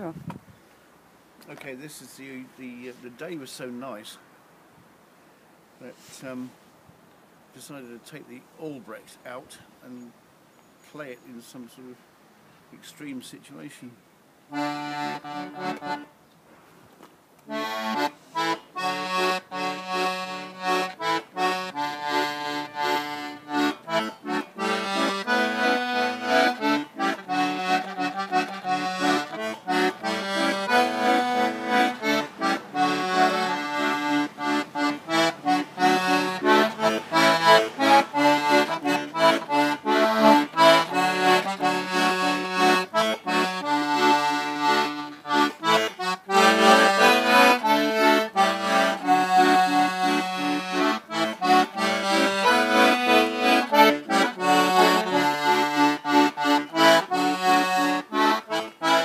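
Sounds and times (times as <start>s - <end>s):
accordion playing a tune: 1.4s - 3.9s, 5.8s - 6.5s, 14.5s - 16.2s, 17.4s - 59.0s.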